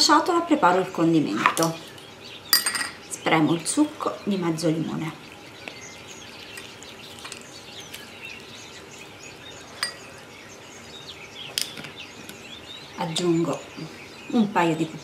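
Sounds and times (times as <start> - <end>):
faint bird chirps: 1.6 - 15.0
kitchenware clinking against bowl: 2.6 - 3.0, 6.5 - 7.5, 9.8 - 10.1.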